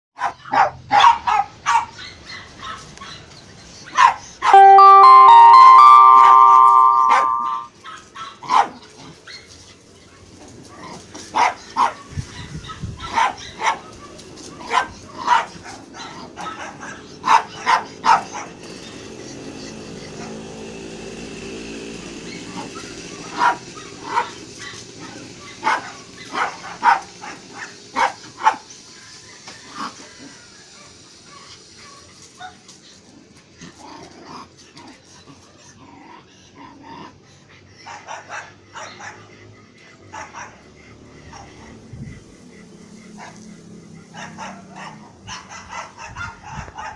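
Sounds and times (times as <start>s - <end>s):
dogs barking: 0.2s - 4.6s, 7.9s - 8.8s, 10.6s - 20.5s, 22.3s - 28.7s, 37.8s - 46.9s.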